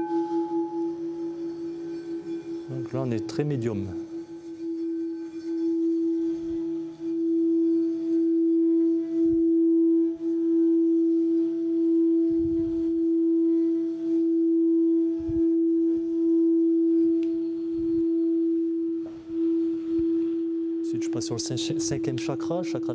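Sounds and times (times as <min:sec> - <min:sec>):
singing bowl sustained tone: 0:00.0 - 0:22.9.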